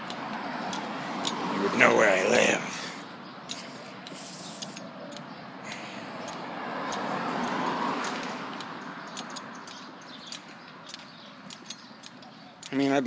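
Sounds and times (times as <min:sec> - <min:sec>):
vehicle passing: 0:00.0 - 0:13.0
light clicks and rattles: 0:03.4 - 0:13.0.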